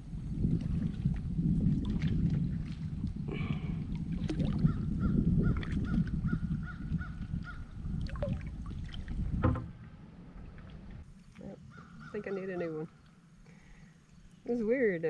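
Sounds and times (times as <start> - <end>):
water rumble: 0.0 - 15.0
gear handling in kayak: 8.9 - 11.4
knock: 9.4 - 9.7
bird calling: 11.4 - 14.9.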